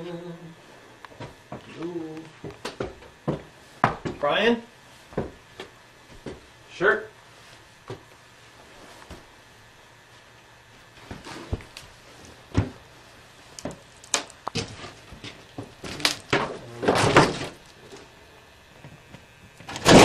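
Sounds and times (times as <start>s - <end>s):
irregular knocks and thuds: 2.4s - 4.2s, 5.1s - 6.5s, 12.5s - 12.8s.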